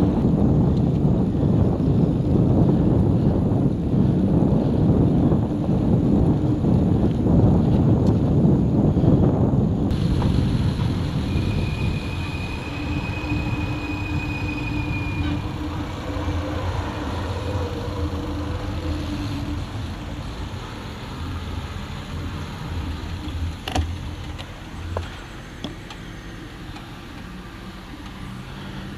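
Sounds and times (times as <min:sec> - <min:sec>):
wind noise: 0:00.0 - 0:28.9
motor vehicles passing: 0:09.9 - 0:28.9.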